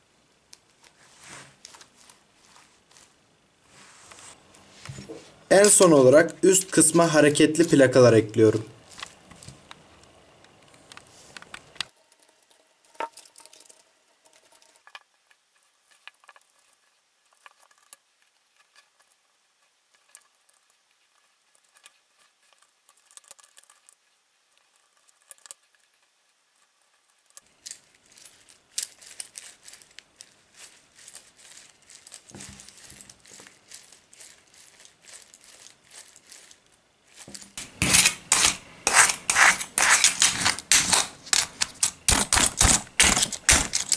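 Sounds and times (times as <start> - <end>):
blade rattling against chainmail: 37.4 - 43.9.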